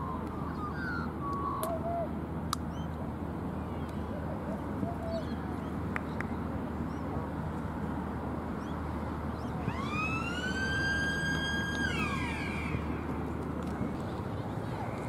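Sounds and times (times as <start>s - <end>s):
outdoor background hiss: 0.0s - 15.0s
siren wail: 9.6s - 13.0s.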